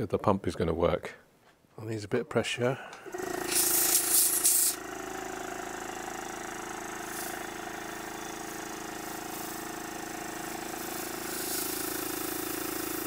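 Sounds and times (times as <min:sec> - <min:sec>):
model locomotive mechanical hum: 0:03.0 - 0:13.0.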